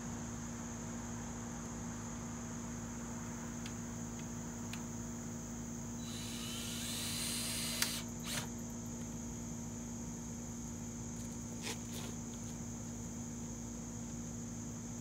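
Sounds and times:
insects chirring: 1.7 - 15.0
rising hiss: 6.0 - 8.5.

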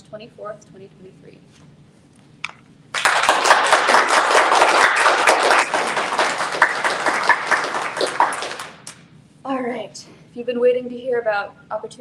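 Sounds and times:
crowd applause: 3.0 - 8.9.

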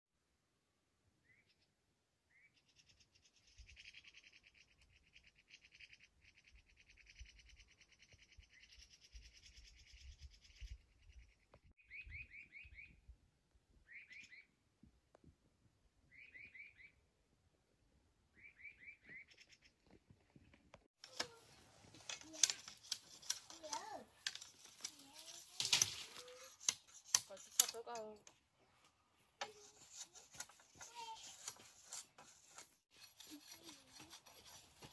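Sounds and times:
birds singing faintly: 1.0 - 14.7, 16.0 - 17.2, 18.2 - 21.2
sharp clicks and knocks: 21.0 - 28.4.

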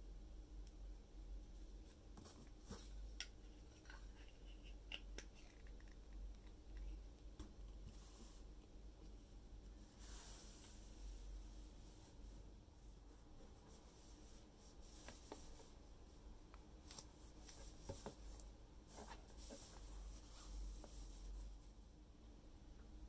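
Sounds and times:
soft rubbing of toy box: 1.6 - 5.6, 9.7 - 15.8, 16.8 - 21.9.

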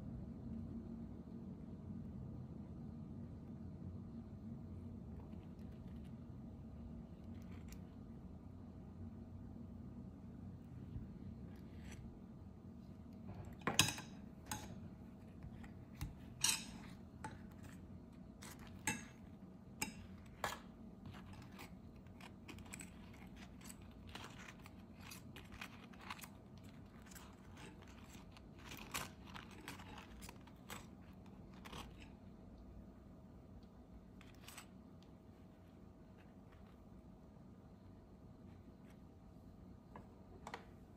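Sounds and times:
faint steady hum: 0.0 - 40.9
utensils and dishes clinking: 13.4 - 14.8, 16.2 - 17.6.

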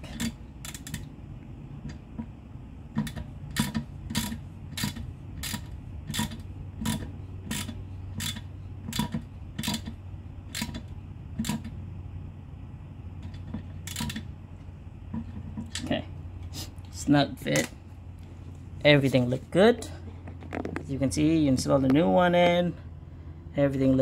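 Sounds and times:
wrench clicking: 0.1 - 1.1, 3.0 - 11.7, 13.8 - 14.2.

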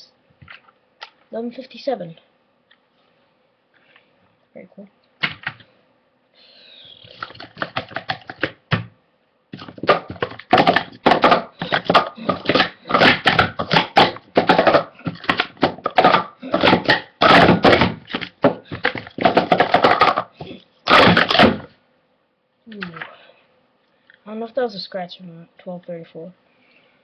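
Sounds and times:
plastic cups clattering: 7.1 - 8.6, 9.6 - 21.7.

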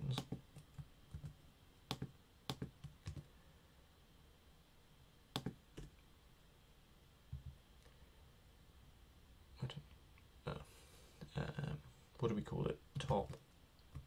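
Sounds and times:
keyboard and mouse clicks: 0.0 - 3.3, 5.4 - 6.0, 13.0 - 14.0.

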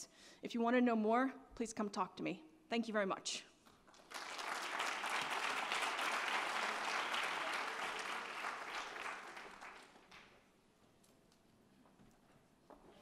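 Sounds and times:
audience applauding: 3.9 - 10.4.

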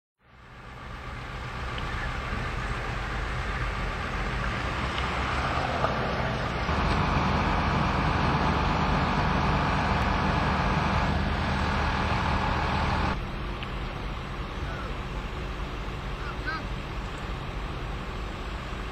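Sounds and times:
traffic rumble and hiss: 0.2 - 18.9.

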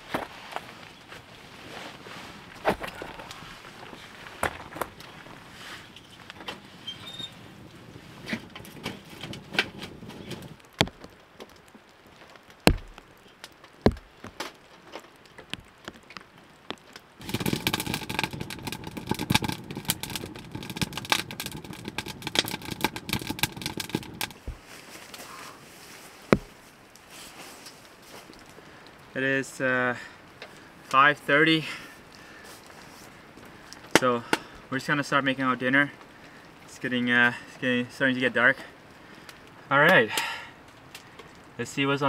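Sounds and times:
fire crackling: 0.0 - 42.0
wooden knocks of logs: 2.6 - 3.4, 8.3 - 11.7, 12.5 - 24.6, 26.3 - 26.6
stove hissing: 17.2 - 24.6.

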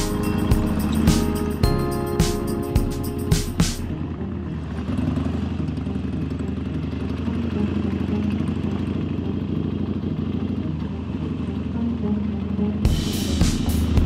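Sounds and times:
motorcycle engine running: 0.0 - 14.0
tyres hissing on wet road: 12.9 - 14.0.

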